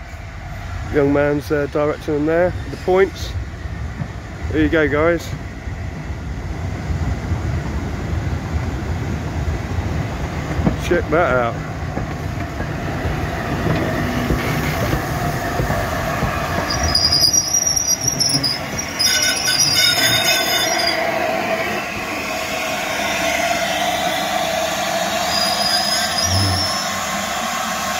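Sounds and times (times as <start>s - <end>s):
steam locomotive rumbling: 0.0s - 27.9s
high-pitched metal squealing: 16.7s - 21.0s, 25.3s - 27.0s.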